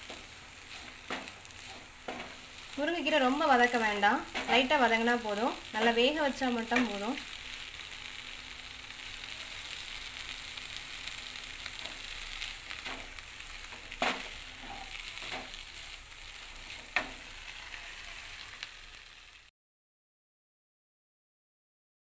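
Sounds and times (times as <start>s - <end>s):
spatula knocking and scraping pan: 0.0s - 2.4s, 13.7s - 15.6s, 16.7s - 17.3s
leaves sizzling in oil: 0.0s - 19.5s.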